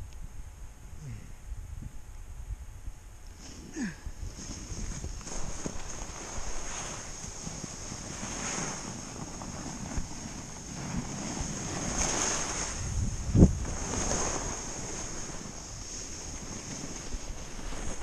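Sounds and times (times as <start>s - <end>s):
wind buffeting microphone: 0.0s - 18.0s
snowboard scraping on snow: 3.3s - 18.0s.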